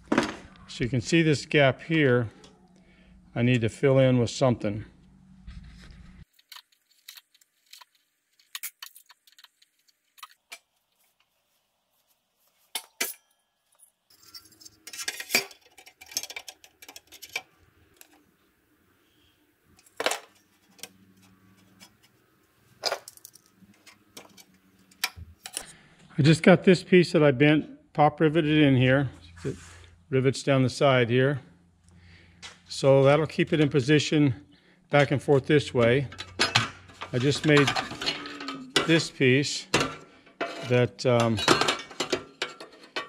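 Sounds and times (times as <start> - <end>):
metal parts clicking and clinking: 6.3 - 10.7, 12.7 - 18.2, 22.8 - 25.6, 35.8 - 43.0.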